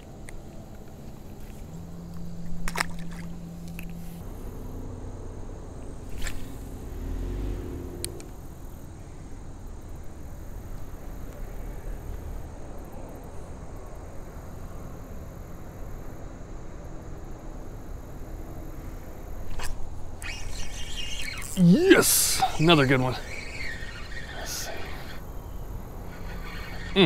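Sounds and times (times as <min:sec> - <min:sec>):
low outdoor background: 0:00.0 - 0:27.0
clicks and knocks of fishing gear: 0:00.2 - 0:04.0.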